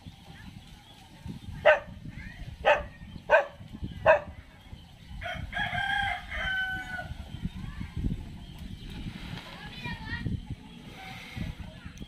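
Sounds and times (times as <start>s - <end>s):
dog barking: 1.6s - 2.0s, 2.6s - 4.4s
rooster crowing: 5.2s - 7.1s.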